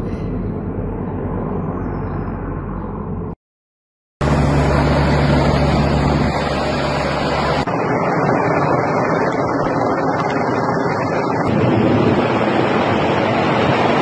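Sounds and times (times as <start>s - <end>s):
helicopter rotor and engine roar: 4.2s - 14.0s
wind on microphone: 4.2s - 14.0s.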